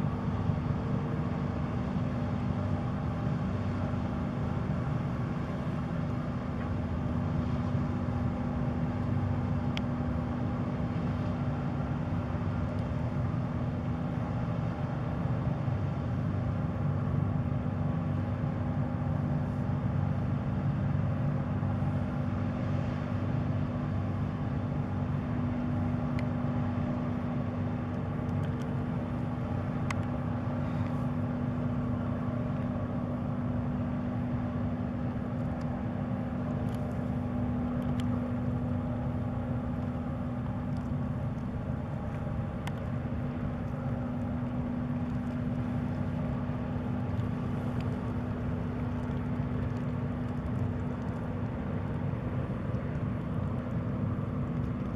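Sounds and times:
ship diesel engine drone: 0.0 - 54.9
faint clicks: 37.7 - 38.2, 48.7 - 52.0.

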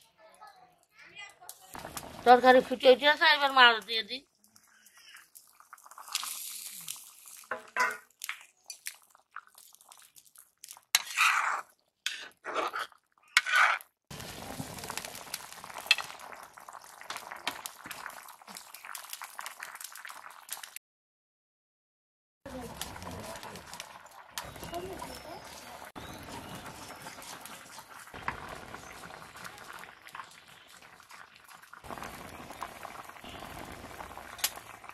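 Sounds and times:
curry bubbling: 1.8 - 20.8, 22.5 - 34.9
metal spatula scraping a wok: 10.9 - 13.8.

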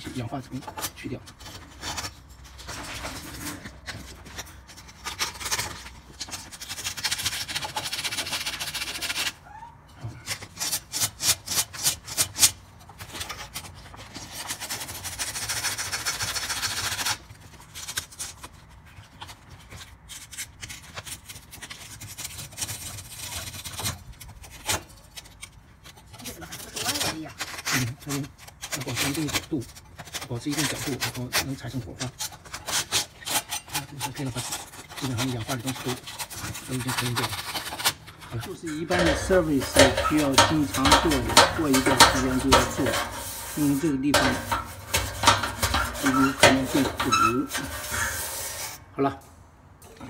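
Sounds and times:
sandpaper rubbing metal: 5.0 - 9.4, 10.3 - 18.4, 26.2 - 48.9.

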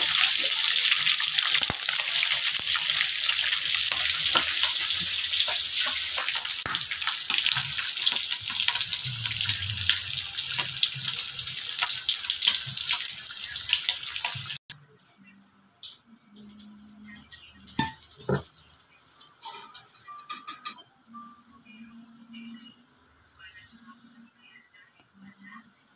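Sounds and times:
fish sizzling in hot oil: 0.0 - 14.6.

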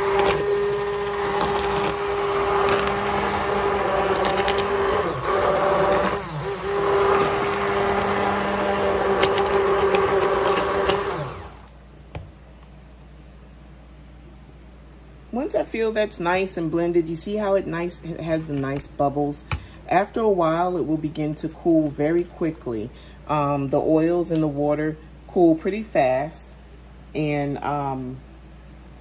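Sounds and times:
stick blender motor whine: 0.0 - 11.8.

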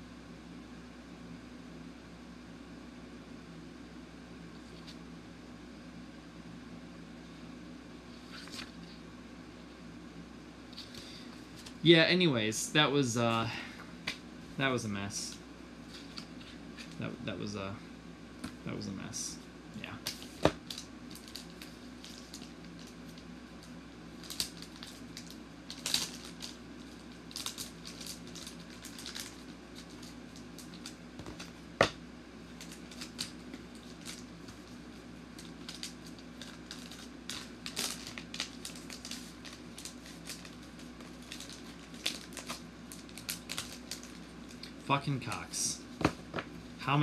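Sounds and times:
plastic bags crinkling: 20.1 - 23.2, 24.1 - 31.5, 32.5 - 45.4.

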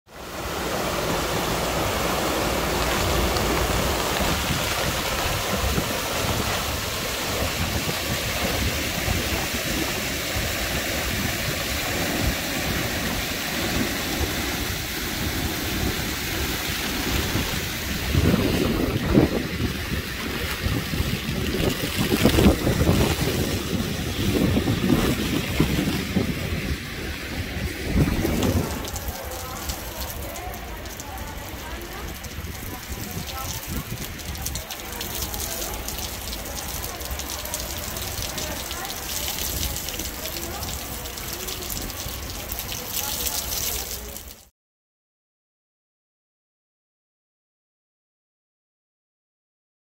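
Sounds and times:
water rushing over weir: 0.1 - 44.5
wind buffeting microphone: 2.7 - 29.6, 31.9 - 34.8.

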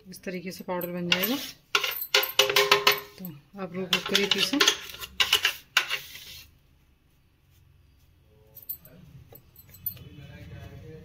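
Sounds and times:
spoon scraping metal jar: 0.8 - 3.2, 3.9 - 6.5
metal clinks: 0.8 - 3.4, 8.5 - 10.2.

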